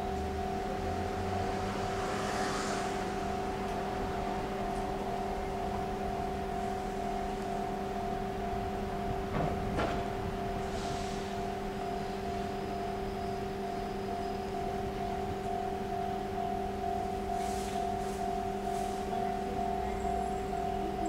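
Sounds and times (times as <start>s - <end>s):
approaching train: 0.0s - 21.0s
distant traffic: 0.0s - 21.0s
steady hum of held tones: 0.0s - 21.0s
hiss: 10.6s - 11.4s.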